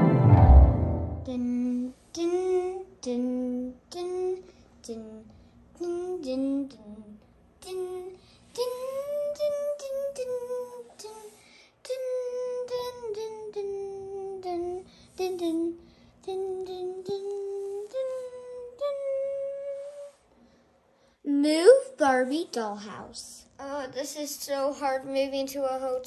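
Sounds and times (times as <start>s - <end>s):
high voice singing wordless tune: 1.0s - 20.3s.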